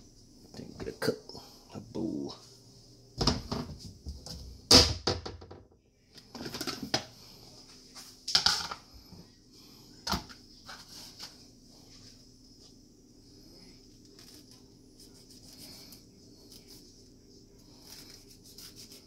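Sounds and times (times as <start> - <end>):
faint steady hum: 0.0 - 5.0, 5.7 - 19.0.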